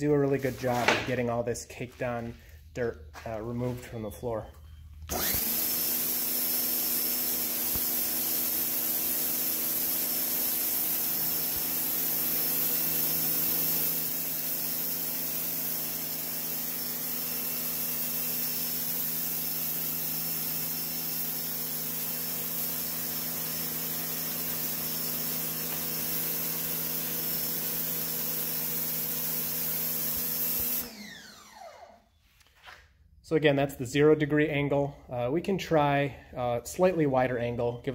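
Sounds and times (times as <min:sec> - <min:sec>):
pressure washer motor humming: 0:05.0 - 0:31.9.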